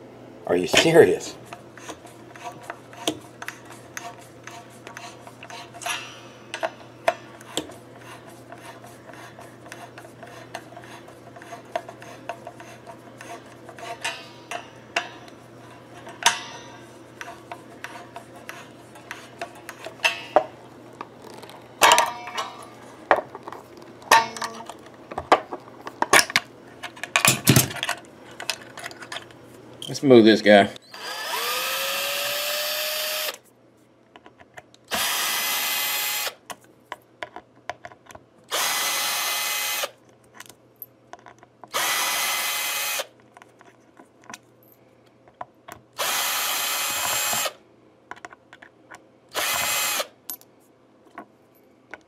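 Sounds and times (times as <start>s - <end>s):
metal clicks scrapes and rattles: 1.5s - 20.4s, 21.0s - 30.0s.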